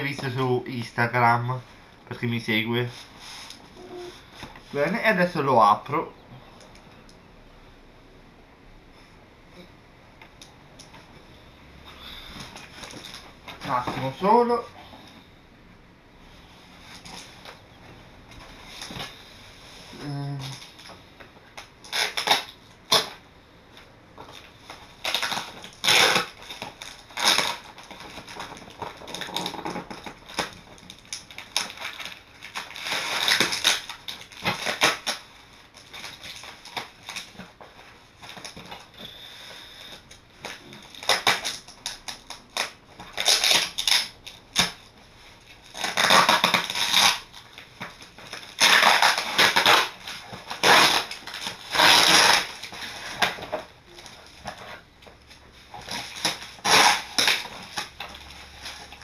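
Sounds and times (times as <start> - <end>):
packaging crackling and ripping: 12.0 - 14.6, 20.4 - 23.2, 23.8 - 39.0, 39.8 - 59.0.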